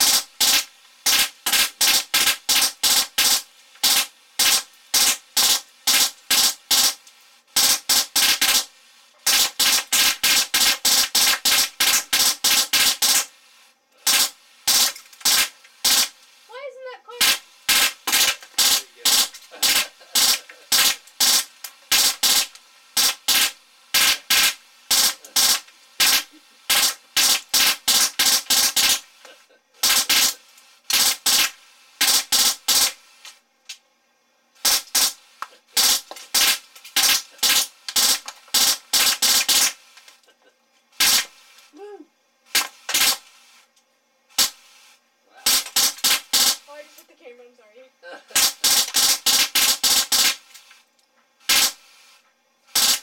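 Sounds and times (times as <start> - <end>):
air gun firing shots: 0.0 - 7.0, 7.6 - 13.3, 14.0 - 16.2, 17.2 - 29.1, 29.8 - 33.0, 34.6 - 39.8, 41.0 - 41.4, 42.5 - 43.3, 44.3 - 44.6, 45.4 - 46.7, 48.4 - 50.5, 51.4 - 51.9, 52.7 - 53.0
short voice sound: 41.8 - 42.1.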